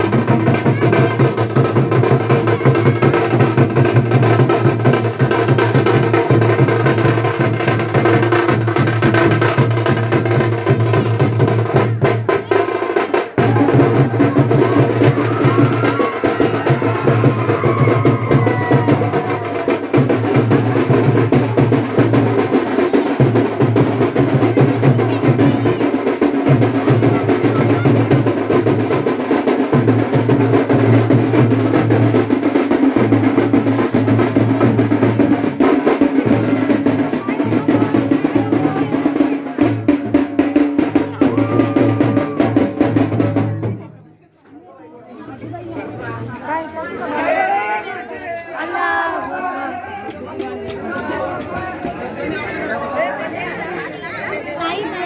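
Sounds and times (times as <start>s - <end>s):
loud drumming with fast rolls: 0.0s - 44.0s.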